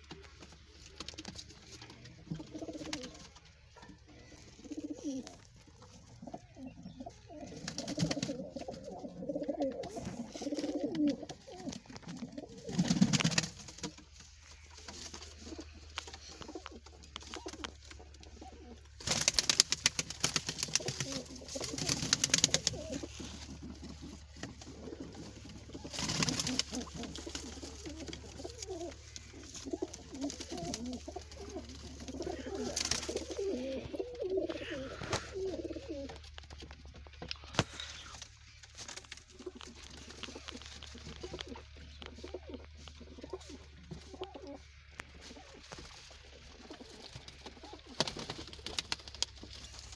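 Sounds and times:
pigeons cooing: 0:00.0 - 0:49.9
wing-flapping and scuffling: 0:00.0 - 0:49.9.

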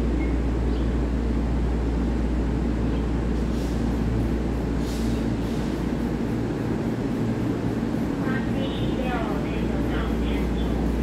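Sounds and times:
train rumble and hum: 0:00.0 - 0:11.0
brief hissing: 0:04.8 - 0:05.8.

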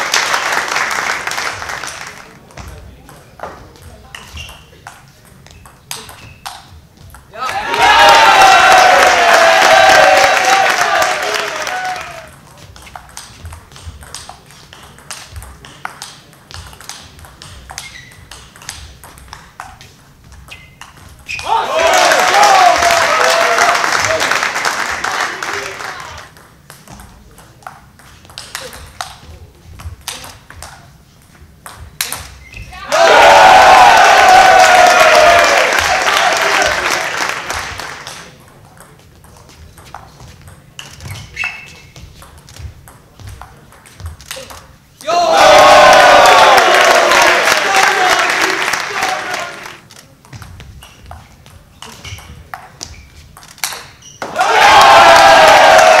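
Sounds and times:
crowd applause: 0:00.0 - 0:02.4, 0:07.4 - 0:12.3, 0:21.5 - 0:26.3, 0:32.9 - 0:38.2, 0:45.2 - 0:49.8, 0:54.4 - 0:56.0
table tennis ball clicking: 0:12.8 - 0:19.9.

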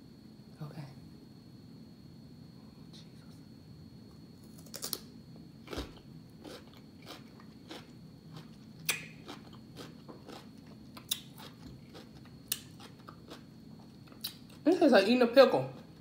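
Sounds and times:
chewing crisp cucumber: 0:05.7 - 0:14.6.

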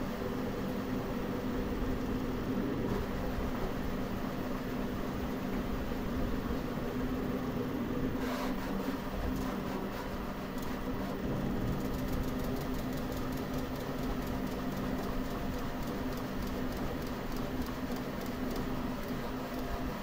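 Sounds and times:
fan hum: 0:00.0 - 0:20.0
print head rapid ticking: 0:10.4 - 0:20.0.

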